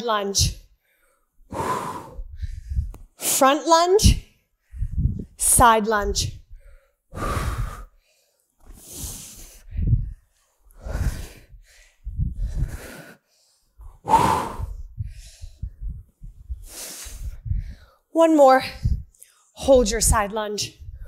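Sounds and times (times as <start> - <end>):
woman breathing hard: 0.8 - 3.1, 6.5 - 18.1.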